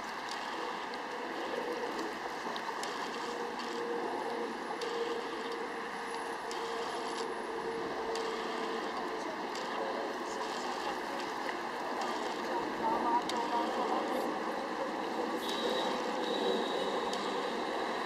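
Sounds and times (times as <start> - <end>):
waves: 0.0 - 18.0
wind: 0.0 - 18.0
autofocus motor whirr: 0.1 - 18.0.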